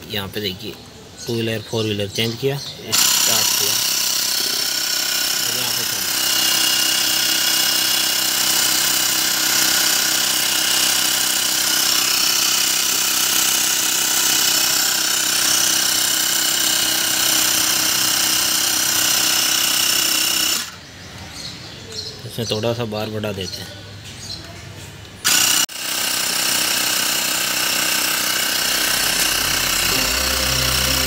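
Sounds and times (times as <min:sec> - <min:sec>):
air compressor buzzing: 0:02.8 - 0:20.8, 0:25.2 - 0:31.0.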